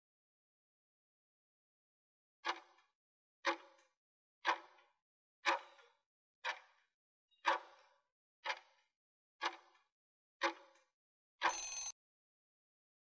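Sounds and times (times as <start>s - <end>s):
sharp timer ticks: 11.4s - 12.0s.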